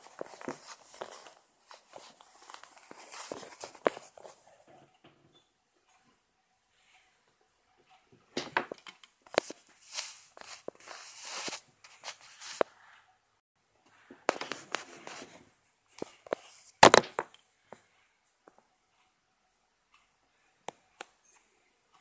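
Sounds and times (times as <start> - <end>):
tapping and rubbing on tablet: 0.0 - 4.4, 9.3 - 12.7, 14.2 - 15.4, 16.0 - 17.3.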